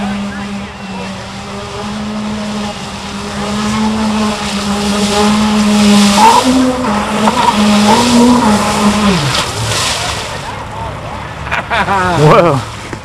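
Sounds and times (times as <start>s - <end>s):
rc speedboat motor whine: 0.0s - 11.4s
water spray hissing: 1.1s - 10.4s.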